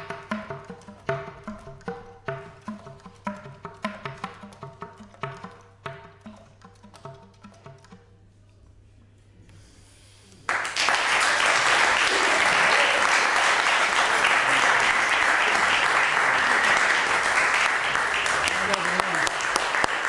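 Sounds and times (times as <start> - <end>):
audience applause: 10.5 - 20.0.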